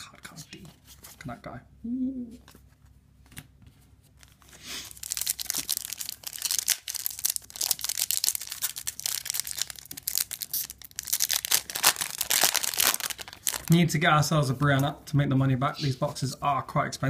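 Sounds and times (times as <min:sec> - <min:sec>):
foil wrapper tearing and crinkling: 0:04.2 - 0:13.8.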